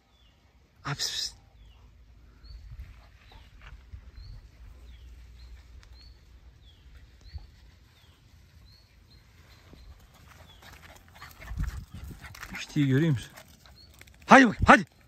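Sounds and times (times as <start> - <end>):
small bird chirping: 1.5 - 12.5.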